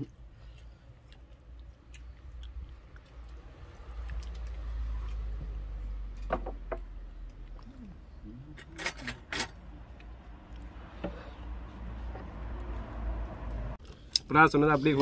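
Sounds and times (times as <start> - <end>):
person chewing: 0.0 - 6.0, 7.2 - 8.6.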